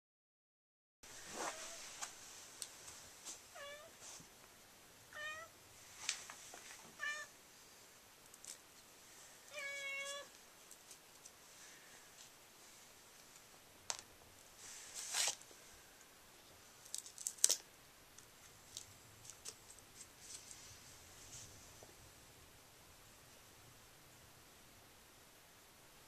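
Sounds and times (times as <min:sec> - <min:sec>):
cat meowing: 0:03.5 - 0:03.9, 0:05.1 - 0:05.5, 0:07.0 - 0:07.3, 0:09.5 - 0:10.3.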